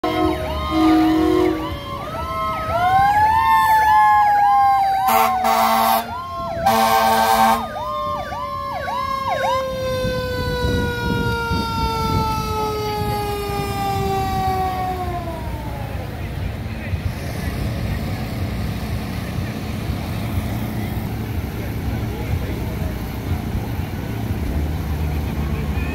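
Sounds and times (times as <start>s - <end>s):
air horn blasts: 0.0s - 1.8s, 5.0s - 7.8s
electronic siren yelping: 0.0s - 16.0s.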